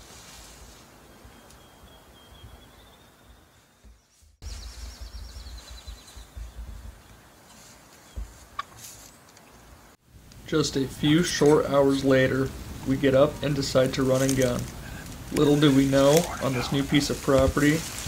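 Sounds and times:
songbirds singing: 1.0 - 9.8.

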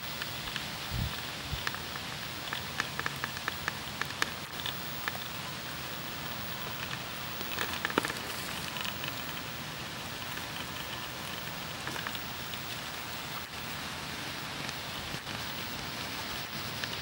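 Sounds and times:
steady hiss: 0.0 - 17.0
small clicks and crackles: 0.1 - 13.8, 14.6 - 17.0
raccoons crunching treats: 1.2 - 13.5.

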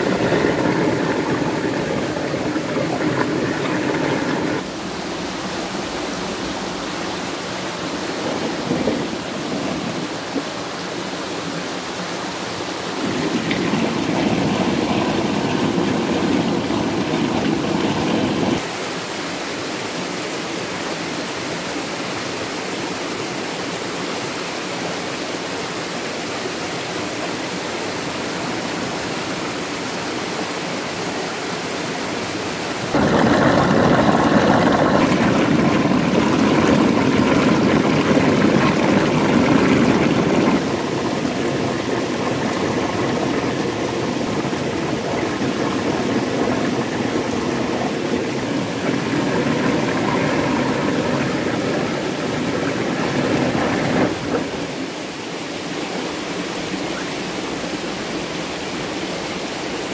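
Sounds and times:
stream water rushing: 0.0 - 59.9
mechanical hum with pitched tones: 33.0 - 54.8.

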